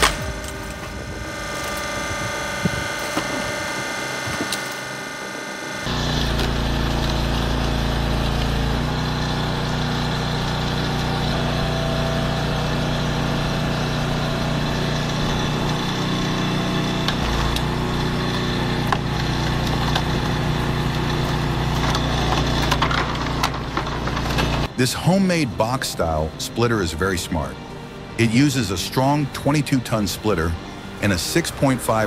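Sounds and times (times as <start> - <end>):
small gasoline engine running: 0.0 - 25.2.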